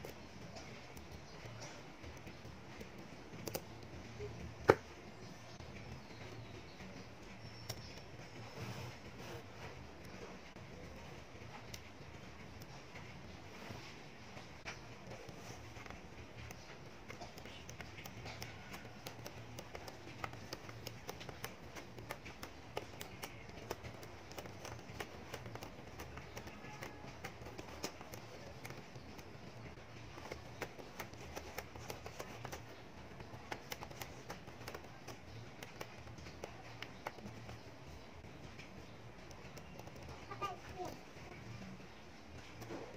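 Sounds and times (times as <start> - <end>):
magnetic balls clicking together: 14.6 - 42.9.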